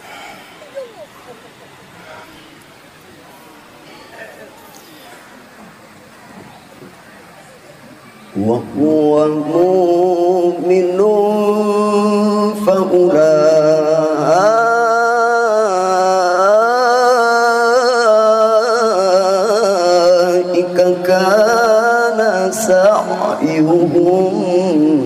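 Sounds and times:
man reciting melodically: 0:08.4 - 0:25.0.

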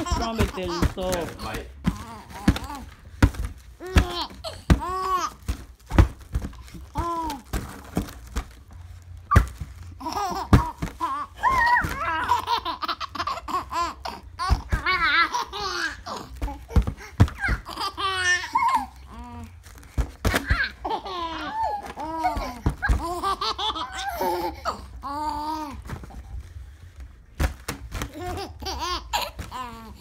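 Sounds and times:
baby laughing: 0:00.0 - 0:02.9, 0:10.0 - 0:19.1, 0:20.3 - 0:25.8, 0:28.1 - 0:30.0
foil balloon crinkling: 0:00.0 - 0:24.4.

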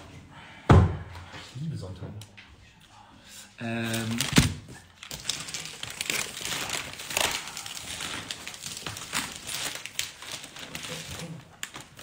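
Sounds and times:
plastic wrapping crinkling: 0:03.7 - 0:12.0.

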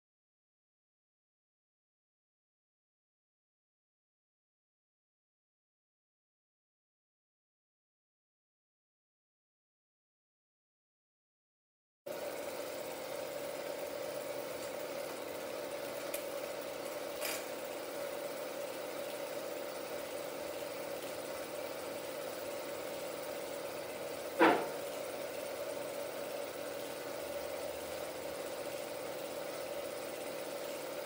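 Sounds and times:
film projector humming: 0:12.1 - 0:31.0.

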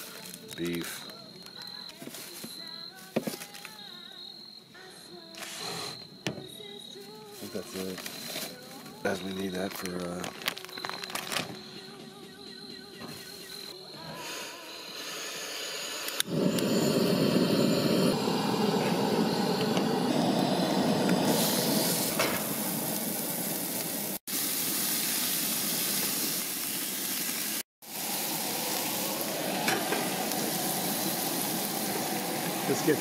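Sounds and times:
meat sizzling in a pan: 0:15.0 - 0:33.0.

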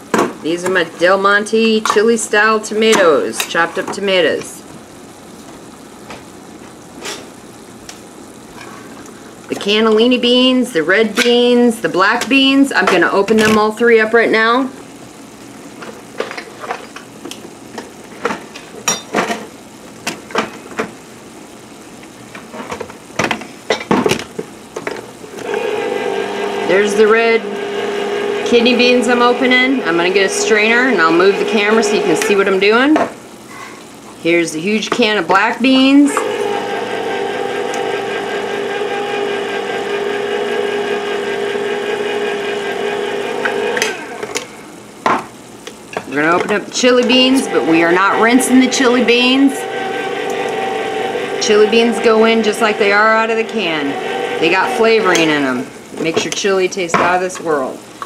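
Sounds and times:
electric can opener humming: 0:24.2 - 0:33.2, 0:34.0 - 0:56.4
can opener clicking on cans: 0:43.4 - 0:44.5.

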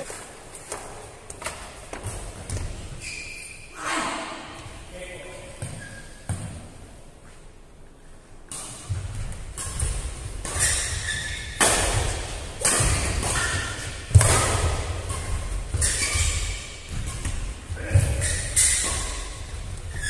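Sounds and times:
racket hitting shuttlecock: 0:08.5 - 0:20.0.

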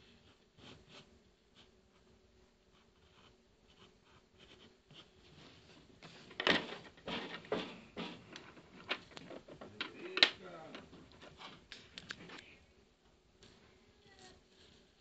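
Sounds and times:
pencil strokes on paper: 0:00.0 - 0:06.3, 0:07.0 - 0:08.4.

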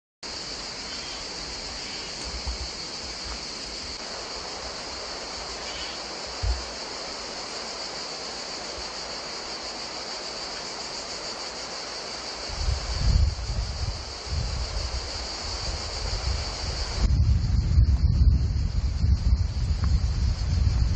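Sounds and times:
high-pitched insect chorus: 0:00.2 - 0:20.9
low bumps: 0:06.4 - 0:06.8.

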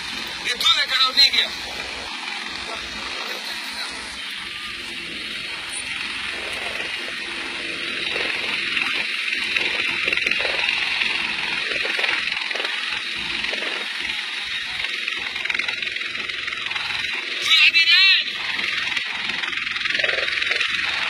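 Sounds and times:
helicopter engine and rotor: 0:00.0 - 0:21.0.

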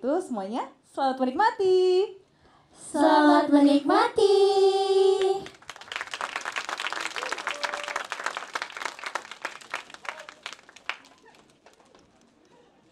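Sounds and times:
audience applauding: 0:05.4 - 0:12.8.

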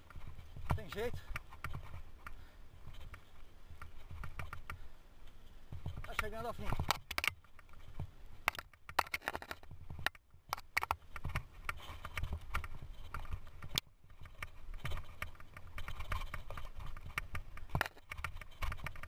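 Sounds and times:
tyres rolling on dirt: 0:00.0 - 0:04.9
bike knocking and rattling: 0:00.0 - 0:19.0.

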